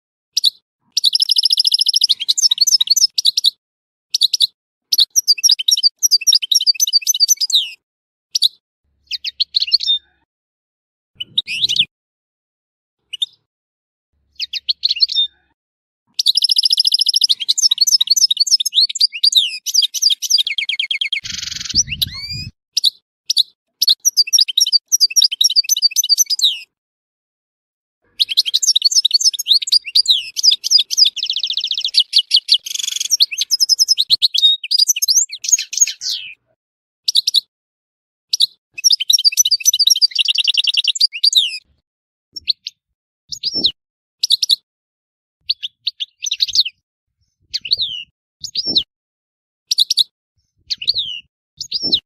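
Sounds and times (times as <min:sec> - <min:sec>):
finch twittering song: 0:00.4 - 0:10.2, 0:11.2 - 0:11.9, 0:13.0 - 0:13.5, 0:14.3 - 0:15.5, 0:16.1 - 0:26.7, 0:28.0 - 0:36.5, 0:37.1 - 0:37.5, 0:38.3 - 0:41.6, 0:42.4 - 0:44.6, 0:45.4 - 0:48.9, 0:49.7 - 0:52.0.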